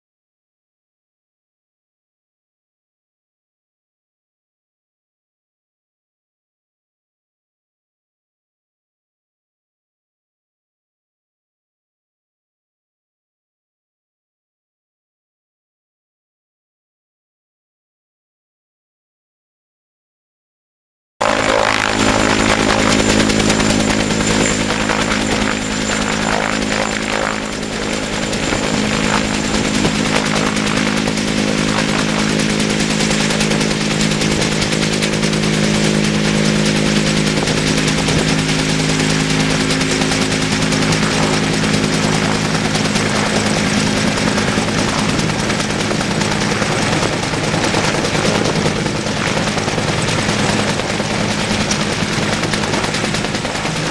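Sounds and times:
helicopter hovering: 21.2 - 53.9.

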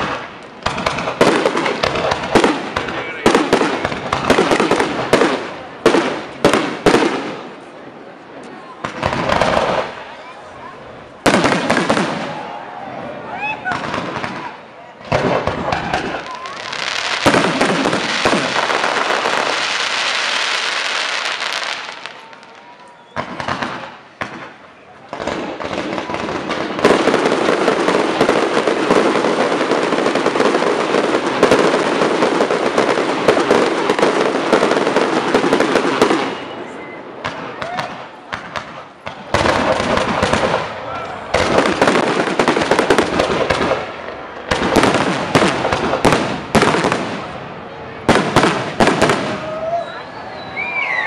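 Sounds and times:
fireworks crackling: 0.0 - 51.0.

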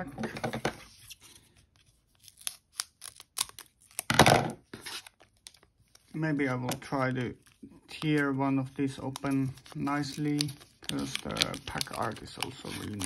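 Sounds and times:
foil wrapper crinkling: 5.0 - 13.0.

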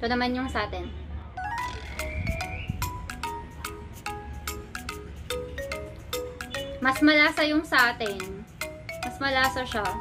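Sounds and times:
light melody of ringing notes: 1.4 - 10.0.

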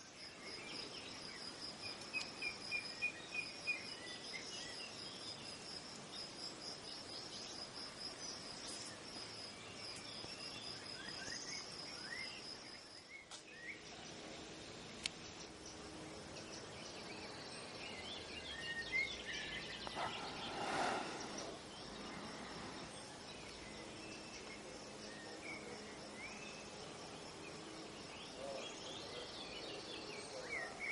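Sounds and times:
birds chirping: 9.7 - 30.9
high insect trill: 13.8 - 29.4.

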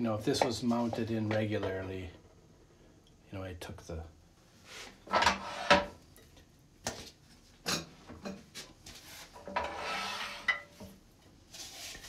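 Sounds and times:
tool scraping wood: 5.1 - 5.9, 9.2 - 10.7.

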